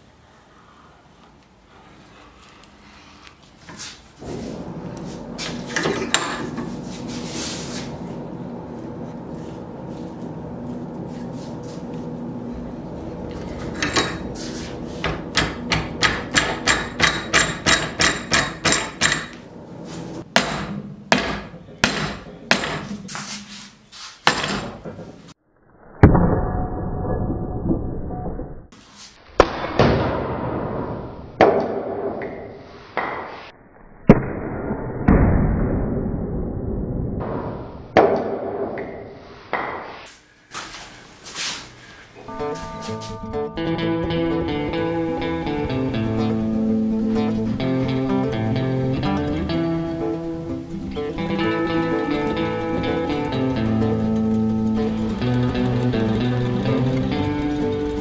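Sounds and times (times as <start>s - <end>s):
steady hum: 0.0s - 23.5s, 40.1s - 58.0s.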